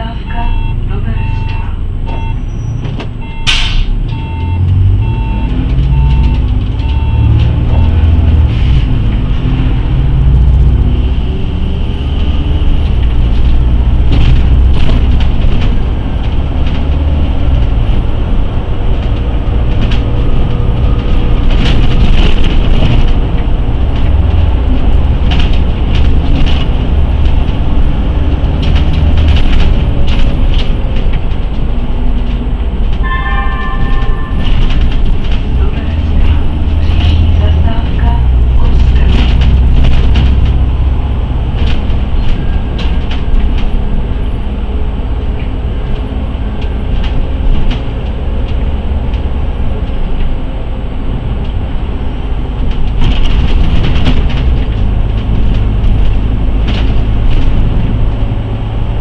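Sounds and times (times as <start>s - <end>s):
bus engine accelerating: 0.0s - 59.0s
repeated beeping: 0.2s - 7.9s.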